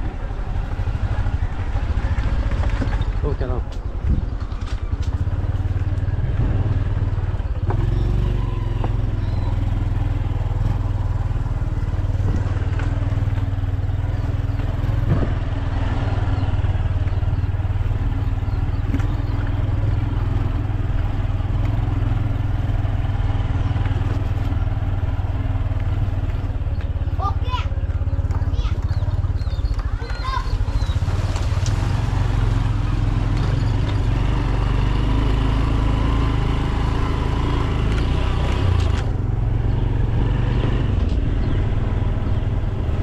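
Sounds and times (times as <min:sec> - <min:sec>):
motorcycle engine droning: 0:00.0 - 0:43.0
knocks from bumps: 0:14.6 - 0:15.5.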